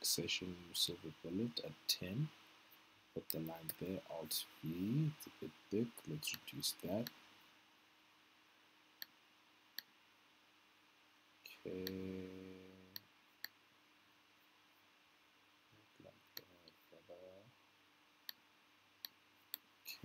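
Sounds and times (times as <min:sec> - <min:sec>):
man humming hmm: 0:11.5 - 0:13.0
low mumble: 0:11.6 - 0:13.0, 0:16.0 - 0:17.5.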